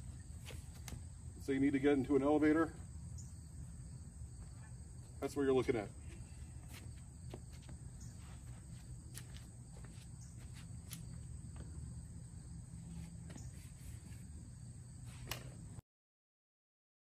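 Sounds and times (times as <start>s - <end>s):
footsteps on pavement: 4.3s - 12.0s.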